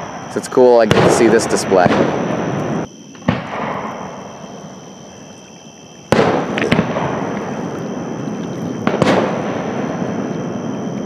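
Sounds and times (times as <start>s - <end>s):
rolling rumble of fireworks: 0.0s - 11.0s
firework crackling pops: 0.8s - 4.3s, 6.1s - 10.5s.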